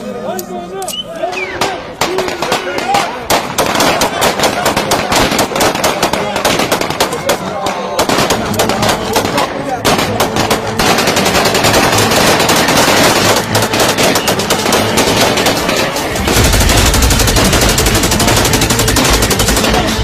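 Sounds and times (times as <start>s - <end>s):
automatic gunfire: 2.0s - 7.4s, 8.0s - 20.0s
heavy steady low sound: 16.0s - 19.6s.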